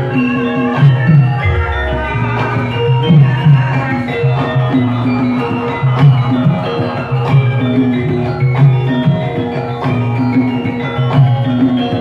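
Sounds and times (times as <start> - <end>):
gamelan ensemble playing: 0.0 - 12.0.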